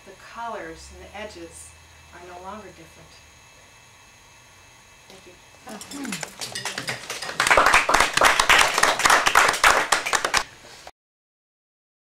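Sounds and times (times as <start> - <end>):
audience applauding: 6.2 - 10.5.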